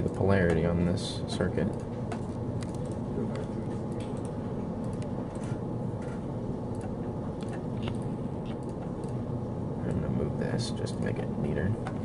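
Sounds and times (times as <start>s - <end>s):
low background hum: 0.0s - 12.0s
computer mouse clicking: 1.6s - 9.2s.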